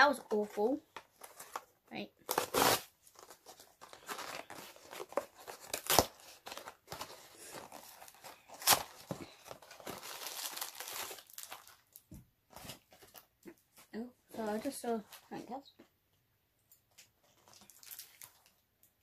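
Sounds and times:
plastic wrapper crinkling: 2.2 - 12.1, 16.9 - 19.0.

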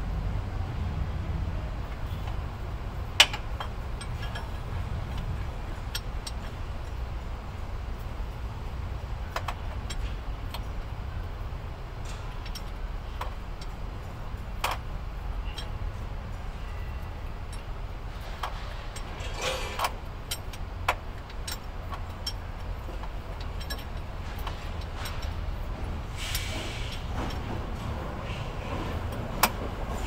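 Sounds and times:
steady low rumble: 0.0 - 19.3
metal tools clinking on engine: 3.0 - 7.2, 9.2 - 10.8, 12.0 - 27.8.

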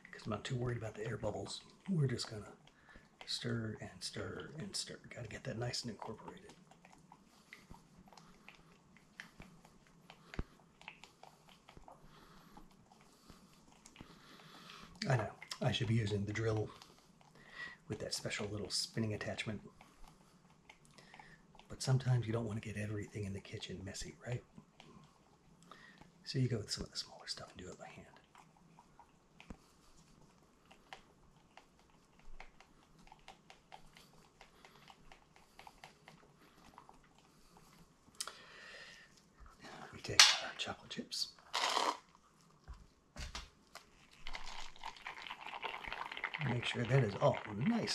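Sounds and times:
stick scraping plastic cup: 41.5 - 42.0.

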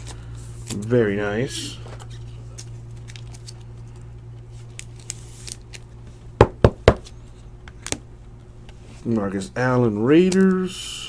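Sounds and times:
cards handled with rustles: 0.0 - 6.2, 10.1 - 10.7.

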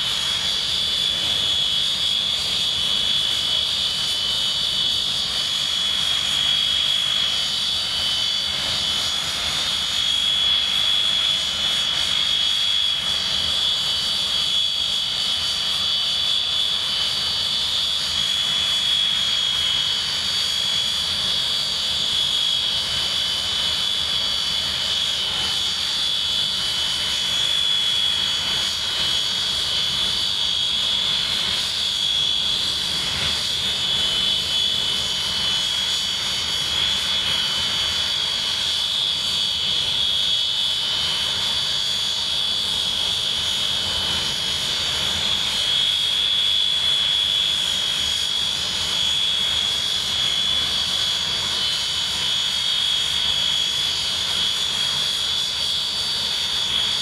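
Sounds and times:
jet engines idling with whine: 0.0 - 57.0.

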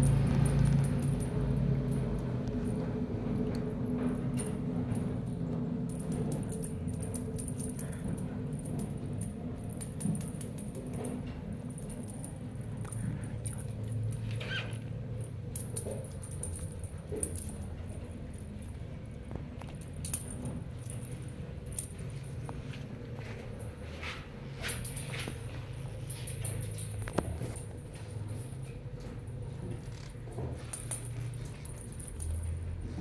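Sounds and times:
paws and claws tapping on tile: 0.0 - 33.0.

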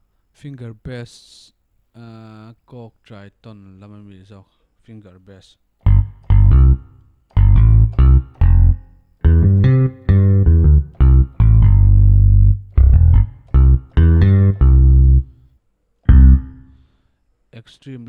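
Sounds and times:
synthesized electric bass line: 5.8 - 15.4, 16.1 - 16.7.

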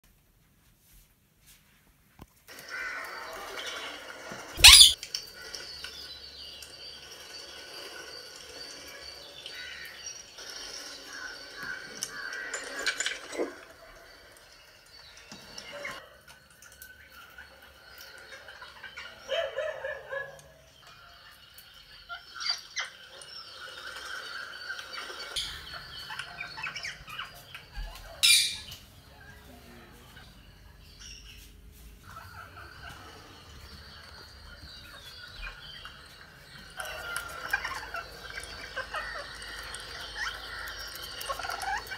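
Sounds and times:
parakeet harsh call: 4.6 - 5.0.

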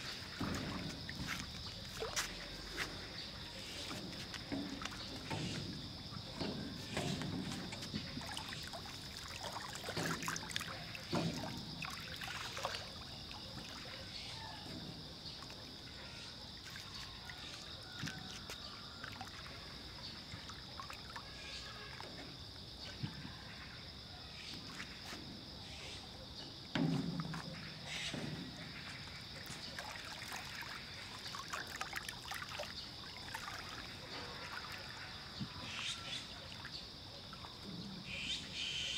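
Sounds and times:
water lapping against boat hull: 0.0 - 23.6, 26.0 - 38.7.

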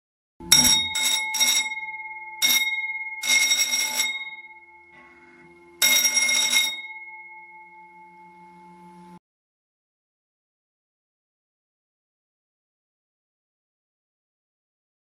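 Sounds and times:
electric bell ringing: 0.4 - 9.2.

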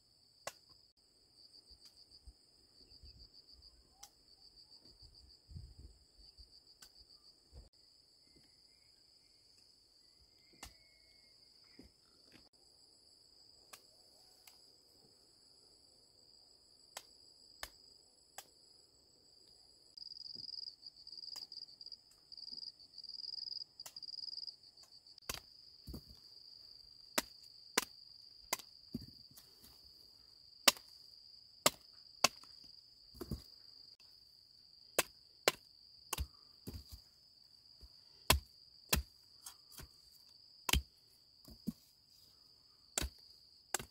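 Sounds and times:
insects droning: 0.0 - 43.9
digging tool striking soil: 25.2 - 26.2, 27.2 - 29.2, 31.6 - 32.6, 34.9 - 37.0, 38.2 - 40.0, 40.6 - 41.8, 43.0 - 43.9.

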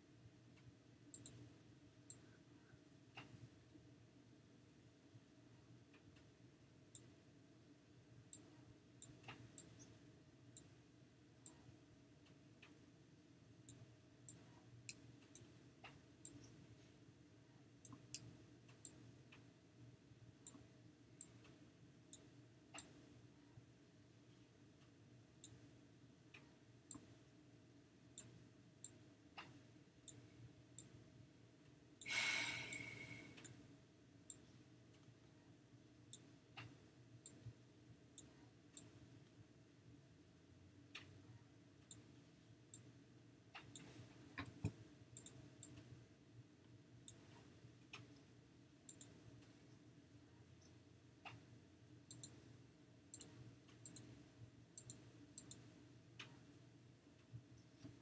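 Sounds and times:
faint steady hum: 0.0 - 58.0
computer mouse clicking: 0.6 - 1.4, 13.7 - 16.6, 17.8 - 19.4, 20.4 - 23.0, 26.4 - 27.1, 38.2 - 39.0, 43.6 - 45.9, 48.9 - 49.2, 52.1 - 52.4, 53.1 - 54.2, 54.8 - 56.4.

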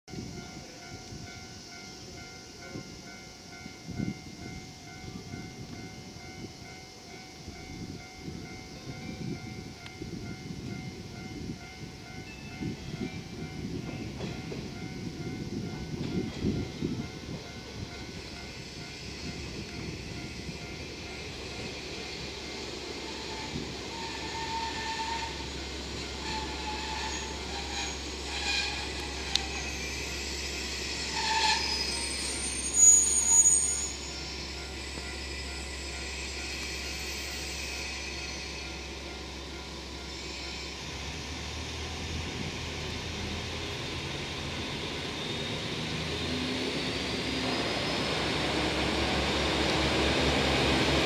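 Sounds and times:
diesel train rumbling: 0.1 - 51.0
level-crossing warning bell: 0.1 - 51.0
faint high wheel squeal: 0.2 - 51.0.

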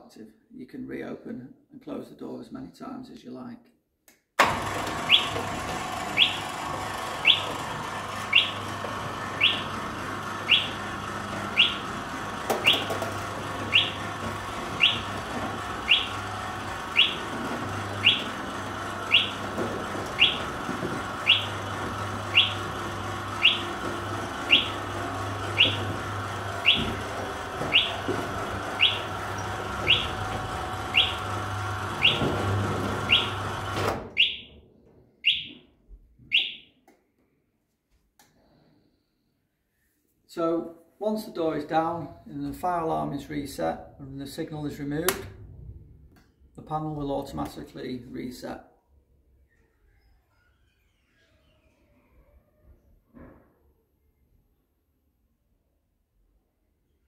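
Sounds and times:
shutter motor humming: 4.4 - 34.0
alarm sounder short high chirps: 23.4 - 23.6, 34.2 - 34.5, 35.2 - 35.6.

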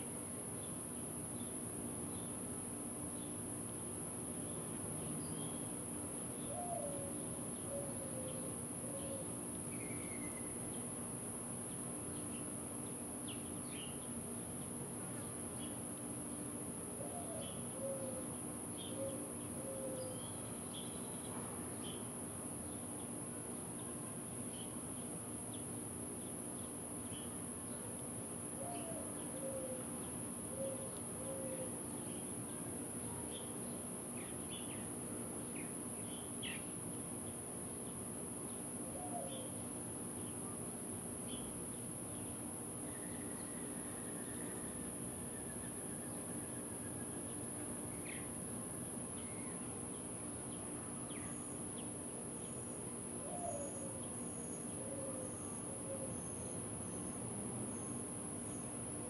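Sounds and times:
insects droning: 0.0 - 59.0.

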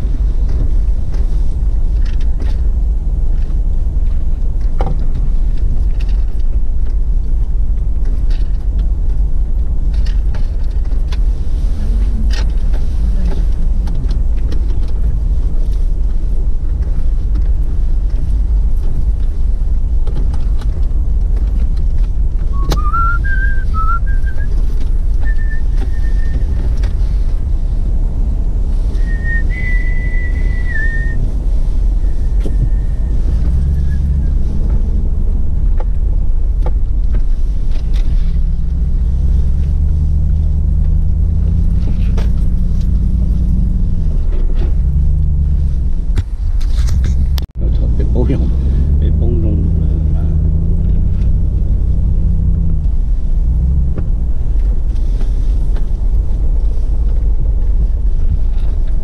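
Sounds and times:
car engine rumbling while driving: 0.0 - 59.0
person whistling a tune: 22.5 - 24.6, 25.2 - 26.6, 29.0 - 31.2.

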